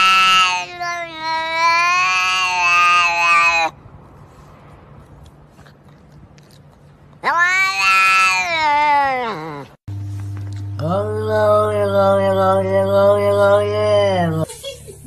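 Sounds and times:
cat meowing: 0.0 - 3.8, 7.2 - 9.8.

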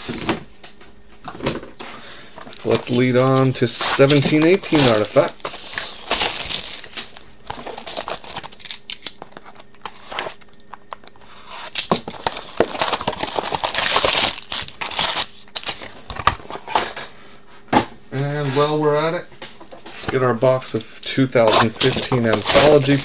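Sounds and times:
plastic wrap crinkling and tearing: 2.6 - 10.4, 11.0 - 16.0, 21.4 - 23.0.

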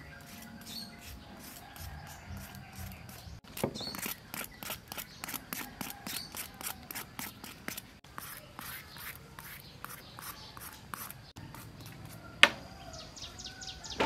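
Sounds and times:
knife scraping gourd skin: 0.1 - 12.2.

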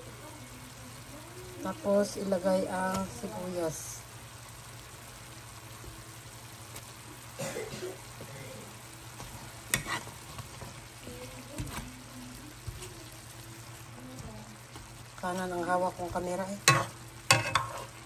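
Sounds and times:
meat sizzling in a pan: 0.0 - 18.0
spatula clacking on pan: 9.7 - 10.0, 16.6 - 17.9.

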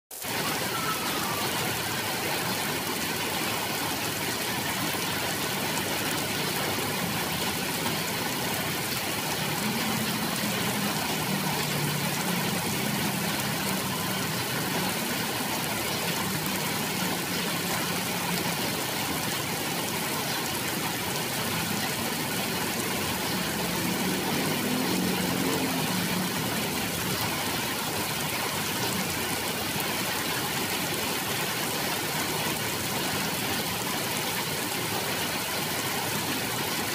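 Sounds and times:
rain falling on foliage: 0.1 - 36.9.

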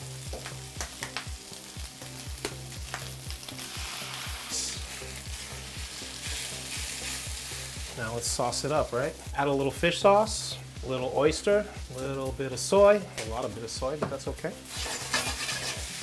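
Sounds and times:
egg and rice sizzling in a pan: 0.0 - 16.0
spatula scraping and knocking a pan: 14.0 - 16.0.

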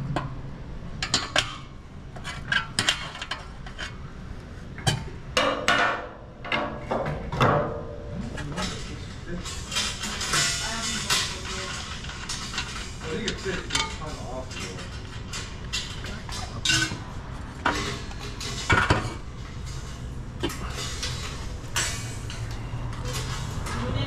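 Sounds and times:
exhaust pipe clanking: 4.9 - 24.0.

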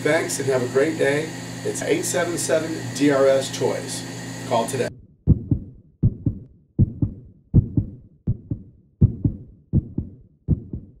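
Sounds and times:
heartbeat thumps: 4.9 - 11.0.

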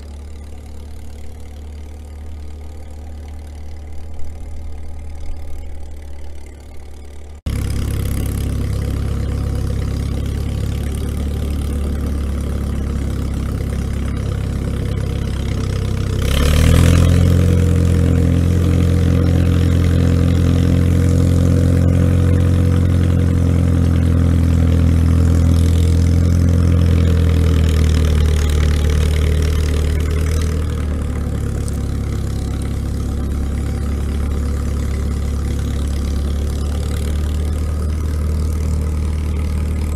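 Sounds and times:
diesel tractor engine running: 0.0 - 39.9.

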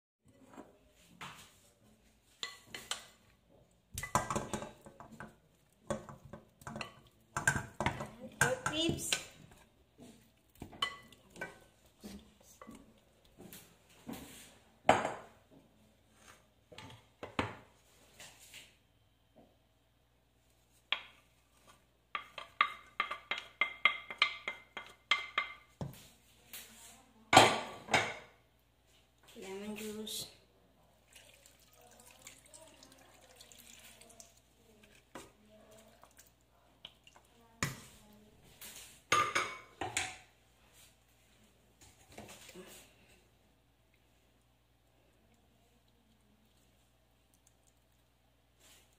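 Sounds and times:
spatula tapping a ceramic bowl: 22.1 - 26.0.

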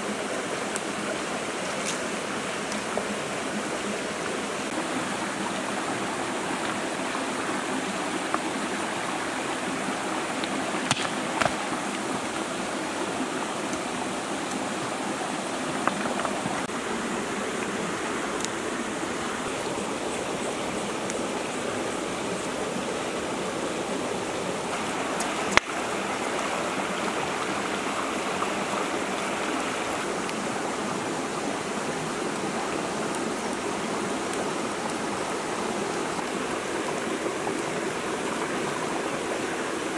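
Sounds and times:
stream rushing over stones: 0.0 - 39.9
sharp knocks: 10.9 - 11.5.

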